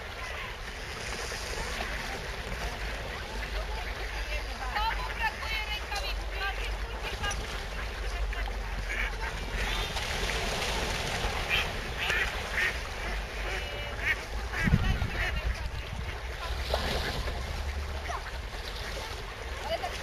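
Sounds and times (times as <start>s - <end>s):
waterfowl quacking and honking: 2.6s - 6.9s, 7.5s - 10.0s, 11.4s - 19.0s
low wind rumble: 14.2s - 16.4s.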